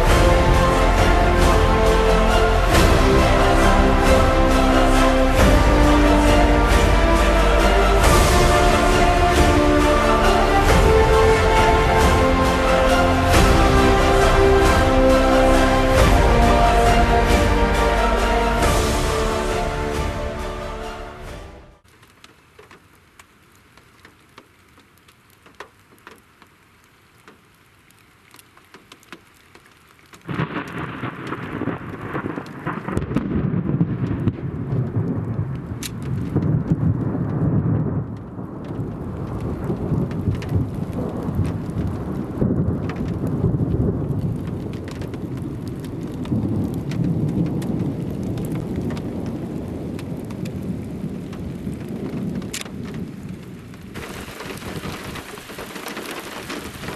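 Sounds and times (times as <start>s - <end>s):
thunder rumbling: 0.0s - 21.8s, 30.2s - 56.9s
raindrops ticking: 21.9s - 56.9s.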